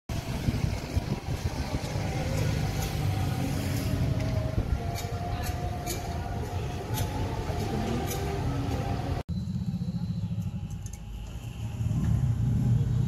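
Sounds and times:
motorbike engine running: 9.3 - 13.0.

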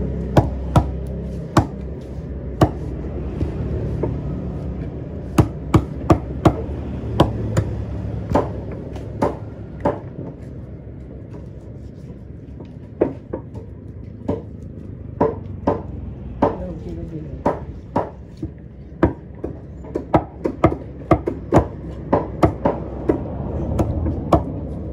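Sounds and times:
knife chopping on wooden block: 2.6 - 2.8, 17.4 - 24.6.

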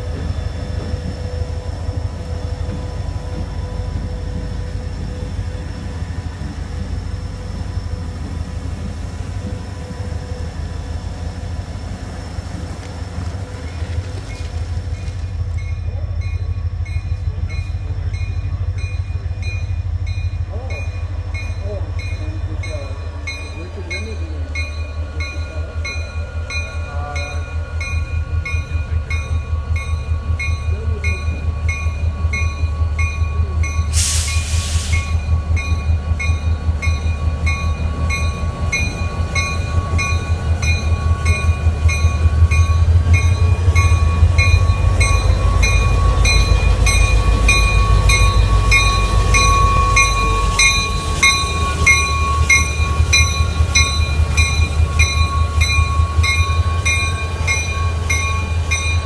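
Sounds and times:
diesel locomotive engine rumble: 0.0 - 59.0
locomotive bell ringing: 15.5 - 34.1, 34.9 - 59.0
short burst of hiss: 34.0 - 35.1.

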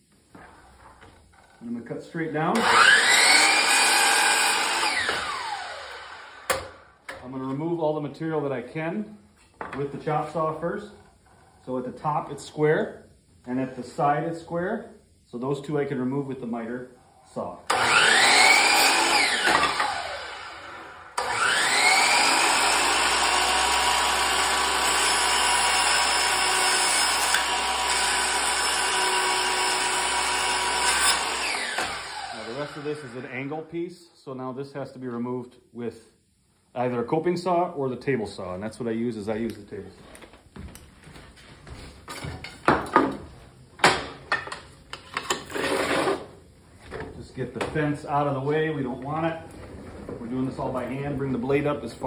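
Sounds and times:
saw cutting through wood: 2.5 - 6.6, 17.7 - 33.5
miter saw whining: 2.6 - 6.7, 17.7 - 33.5
wood and tools knocking: 42.1 - 45.5.

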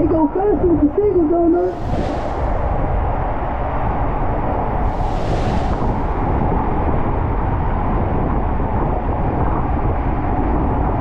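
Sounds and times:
hiss of spray: 1.7 - 2.9, 4.8 - 6.4
rushing water and air on slide: 1.7 - 8.3.

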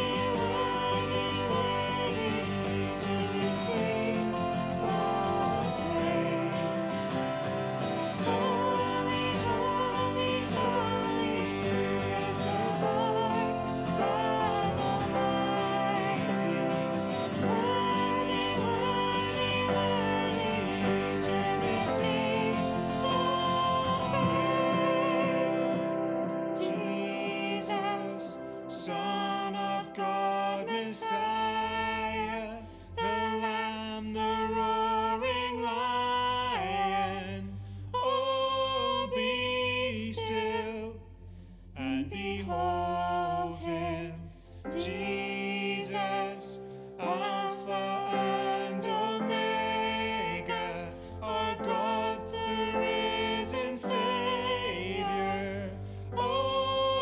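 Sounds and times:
instrumental accompaniment: 0.0 - 29.5
worship song singing: 0.0 - 57.0.

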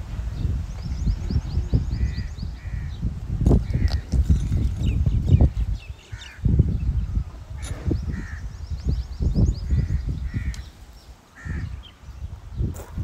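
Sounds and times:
crow cawing: 9.7 - 10.6, 11.4 - 11.8.

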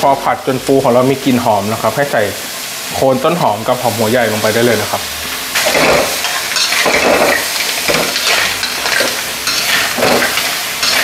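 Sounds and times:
hot oil sizzling: 0.0 - 11.0
metal spatula scraping wok: 5.6 - 11.0.

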